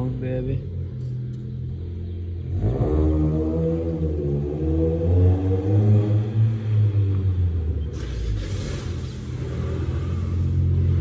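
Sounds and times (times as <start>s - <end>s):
car engine idling: 0.0s - 2.8s, 7.2s - 11.0s.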